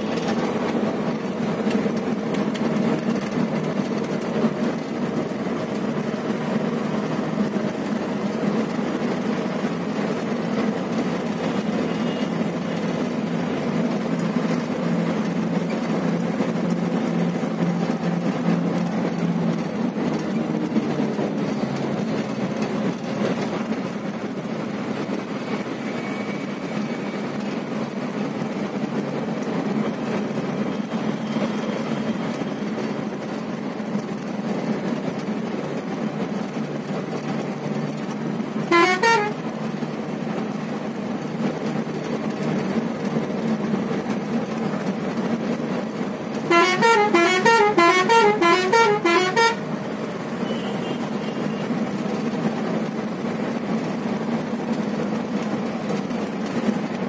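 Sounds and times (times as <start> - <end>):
engine and road rumble: 0.0 - 57.0
multi-tone vehicle horn warbling: 38.7 - 39.6, 46.4 - 49.8, 50.4 - 51.6.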